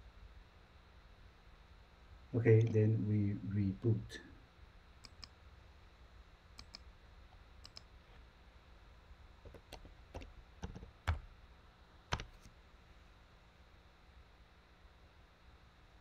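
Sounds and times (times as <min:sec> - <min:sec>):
mouse and keyboard clicks: 0:05.0 - 0:05.3, 0:06.6 - 0:06.8, 0:07.6 - 0:07.9, 0:09.4 - 0:11.2.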